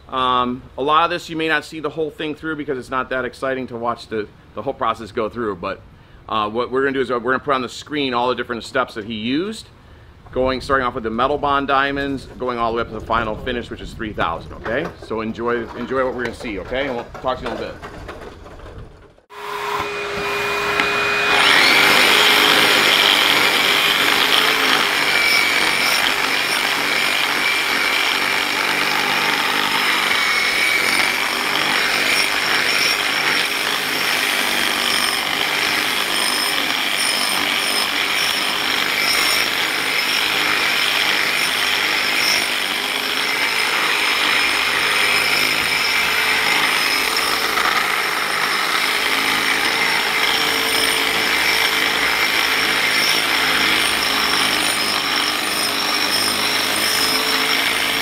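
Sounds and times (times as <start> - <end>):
angle grinder grinding concrete: 19.2 - 58.0.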